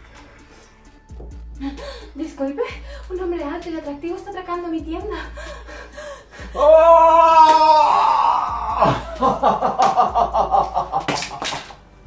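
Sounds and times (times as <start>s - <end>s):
man laughing maniacally: 6.3s - 11.5s
loud held cry: 6.6s - 9.0s.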